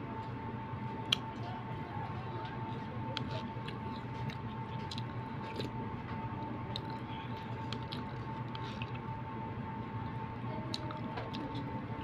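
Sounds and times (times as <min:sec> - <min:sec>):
chewing: 0:02.4 - 0:09.2, 0:10.0 - 0:12.0.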